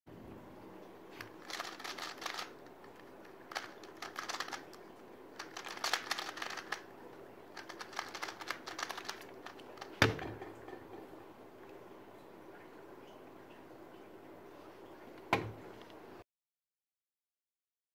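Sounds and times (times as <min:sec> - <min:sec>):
rapid plastic clicking of cube: 0:01.2 - 0:04.8, 0:05.4 - 0:06.9, 0:07.6 - 0:10.2.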